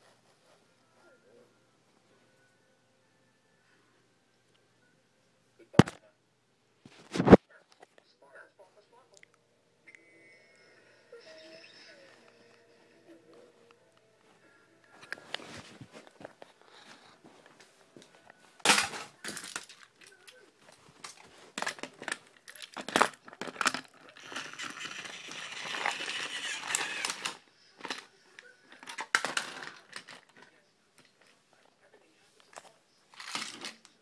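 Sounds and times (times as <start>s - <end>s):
handling scraping and rustling: 14.9s - 17.7s, 18.5s - 28.0s.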